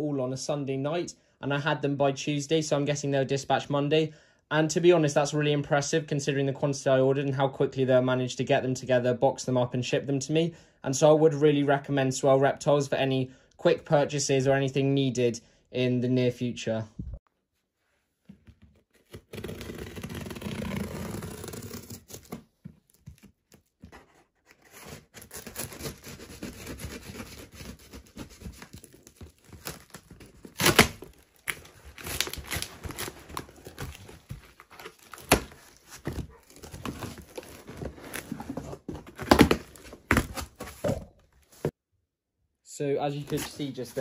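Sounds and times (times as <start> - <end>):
scissors cutting packing tape: 24.6 - 35.7.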